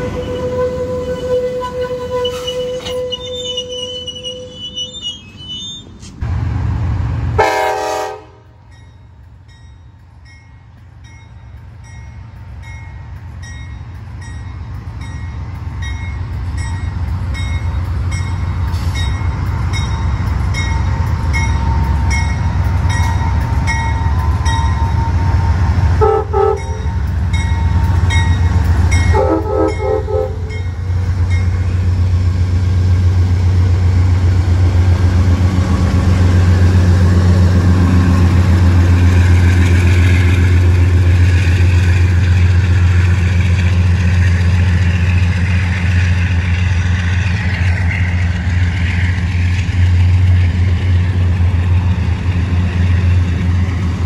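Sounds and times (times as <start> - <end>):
diesel train horn: 0.0 - 4.7, 7.3 - 8.7, 24.1 - 27.2, 29.0 - 30.7
diesel locomotive engine rumble: 0.0 - 54.0.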